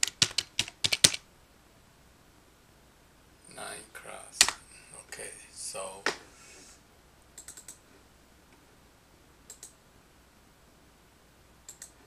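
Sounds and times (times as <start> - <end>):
computer keys clicking: 0.0 - 1.2, 7.4 - 7.8, 9.5 - 9.8, 11.7 - 12.0
low steady hum: 1.2 - 12.0.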